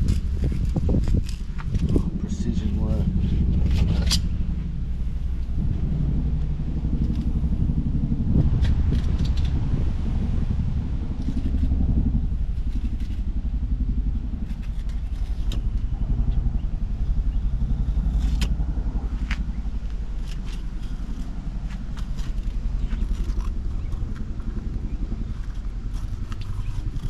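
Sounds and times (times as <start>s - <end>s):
knife cutting and scraping fish: 0.0s - 2.0s, 14.4s - 15.8s, 20.2s - 27.0s
steady low rumble: 0.0s - 27.0s.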